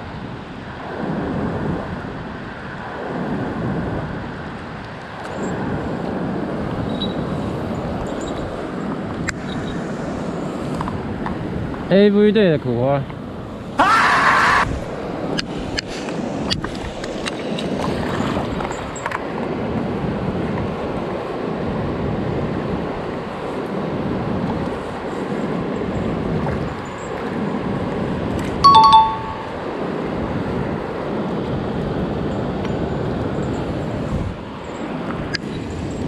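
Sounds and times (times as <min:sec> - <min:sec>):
stream water rushing: 0:28.6 - 0:30.0
two-note falling chime: 0:28.7 - 0:29.6.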